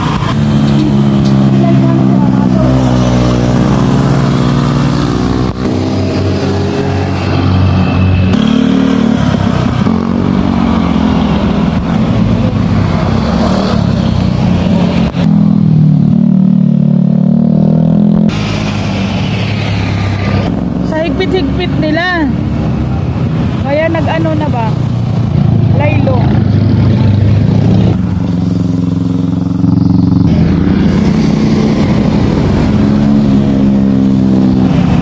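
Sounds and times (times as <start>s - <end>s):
motorcycles revving past: 0.0s - 35.0s.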